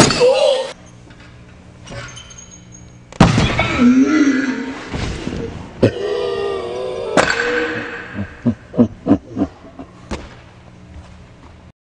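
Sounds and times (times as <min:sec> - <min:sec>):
person crying out: 0:00.0 - 0:00.8, 0:03.8 - 0:04.8, 0:05.8 - 0:09.6
short falling vocal sounds: 0:03.7 - 0:04.9.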